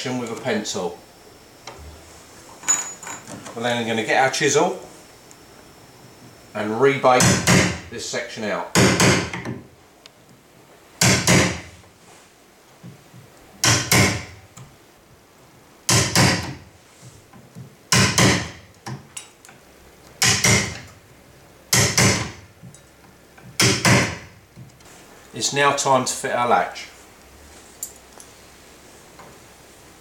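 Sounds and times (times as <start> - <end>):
hammer striking chisel into wood: 7.2 - 7.9, 8.8 - 9.6, 11.0 - 11.7, 13.6 - 14.4, 15.9 - 16.6, 17.9 - 18.7, 20.2 - 20.9, 21.7 - 22.4, 23.6 - 24.3.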